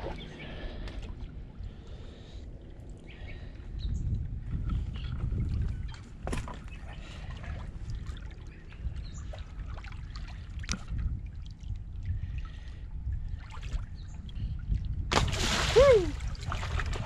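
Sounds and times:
low wind rumble: 0:00.0 - 0:17.0
water sloshing and splashing: 0:05.0 - 0:17.0
fish splashing loudly: 0:15.1 - 0:17.0.

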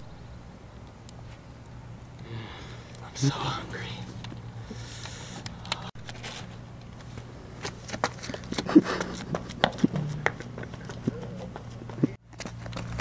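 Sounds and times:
low steady hum: 0:00.0 - 0:13.0
running footsteps on asphalt: 0:07.0 - 0:13.0.

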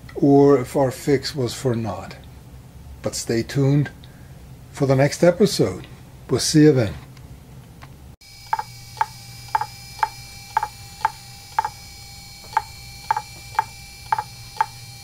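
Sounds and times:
faint steady whine: 0:08.2 - 0:15.0
hard drive clicking: 0:08.4 - 0:11.8, 0:12.4 - 0:14.8.

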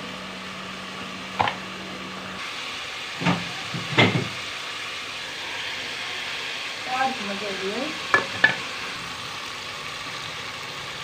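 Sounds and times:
curry hissing in a pot: 0:00.0 - 0:11.0
metal knocks on a pot: 0:08.1 - 0:08.6.

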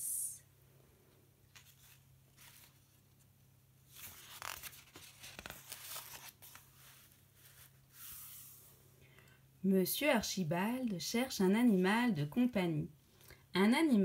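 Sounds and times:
paper pages turning: 0:01.5 - 0:08.6.

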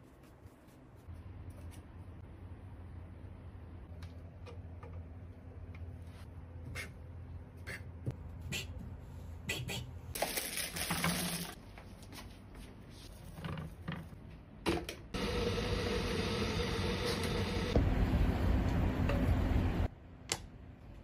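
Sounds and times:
electric kettle heating water: 0:15.2 - 0:19.4.

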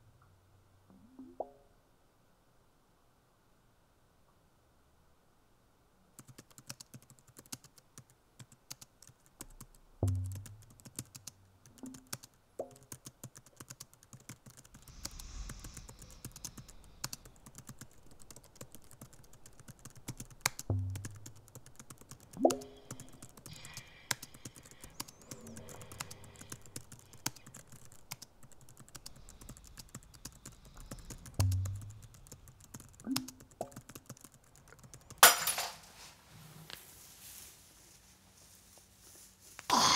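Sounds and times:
small irregular clicks and ticks: 0:06.1 - 0:35.3.

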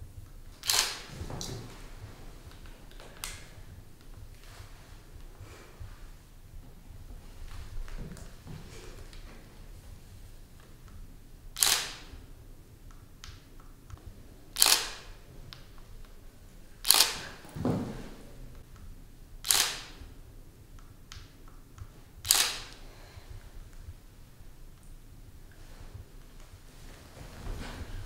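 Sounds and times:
camera shutter clack: 0:00.6 - 0:01.1, 0:11.6 - 0:12.1, 0:14.6 - 0:15.2, 0:16.8 - 0:17.4, 0:19.4 - 0:20.0, 0:22.2 - 0:22.8.

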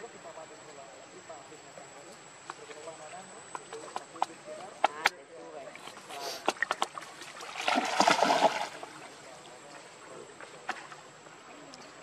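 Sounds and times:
water splashing and lapping: 0:05.8 - 0:12.0.

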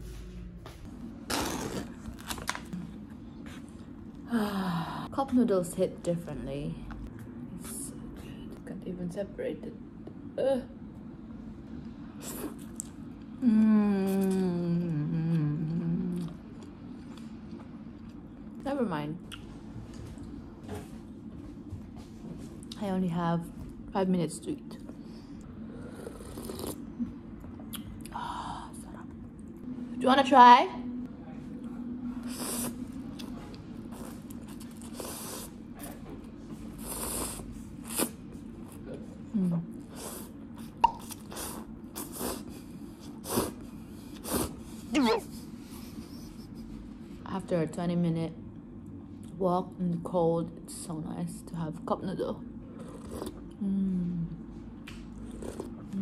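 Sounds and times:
woman humming mmm: 0:13.4 - 0:16.4, 0:53.5 - 0:54.5.

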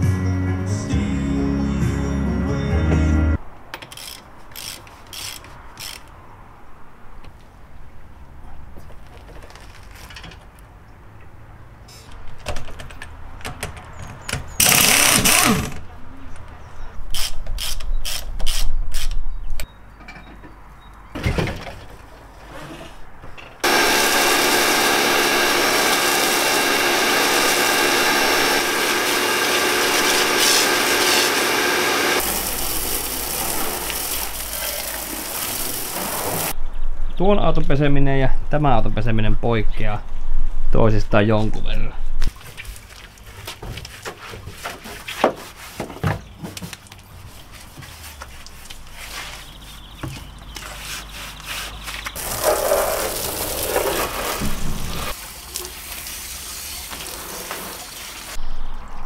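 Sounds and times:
ratchet clicking: 0:03.8 - 0:06.1, 0:14.6 - 0:15.6
water spraying from hose gun: 0:23.6 - 0:36.6, 0:52.2 - 0:58.4.

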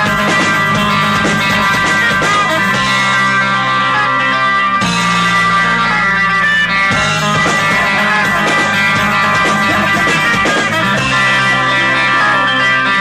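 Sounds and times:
rapid percussive hits: 0:00.0 - 0:02.8, 0:07.0 - 0:11.2
live rock band playing: 0:00.0 - 0:13.0
ringing guitar chord: 0:00.0 - 0:13.0.

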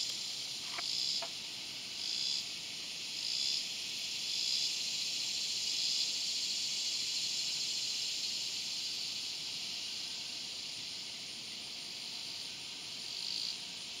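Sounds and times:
cicada buzzing: 0:00.0 - 0:14.0.

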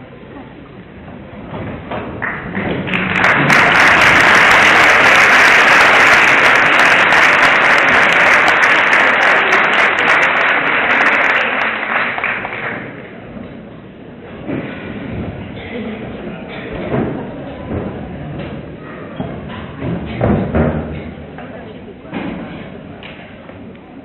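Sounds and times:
audience applauding: 0:02.2 - 0:13.1.

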